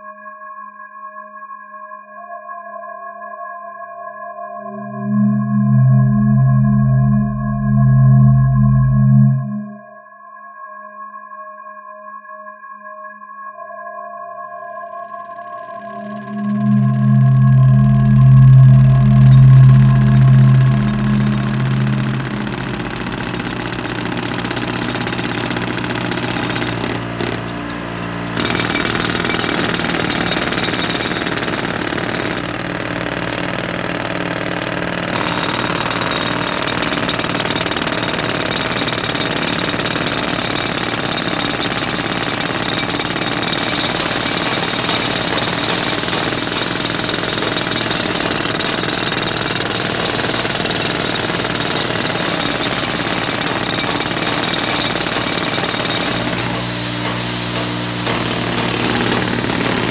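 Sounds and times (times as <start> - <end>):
brush cutter engines buzzing: 16.0 - 39.8, 43.0 - 48.6, 49.3 - 59.9.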